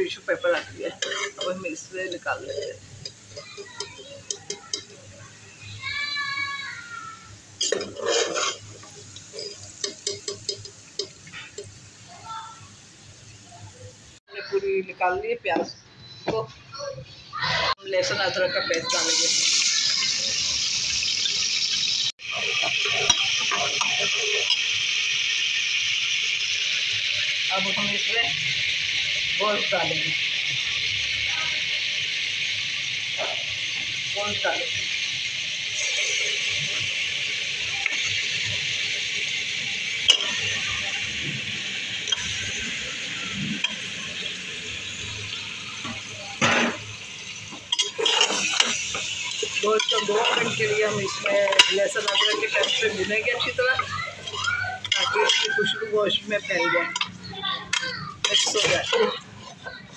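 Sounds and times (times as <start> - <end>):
paste sizzling in hot oil: 0.0 - 14.3, 17.4 - 59.9
metal spoon scraping pot: 0.5 - 3.7, 7.6 - 11.7, 40.0 - 40.6, 47.6 - 55.8, 57.7 - 59.6.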